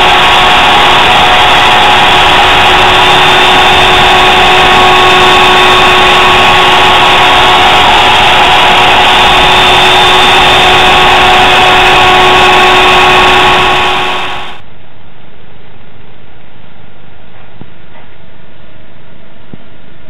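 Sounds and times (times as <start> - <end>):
router spindle whine: 0.0 - 14.6.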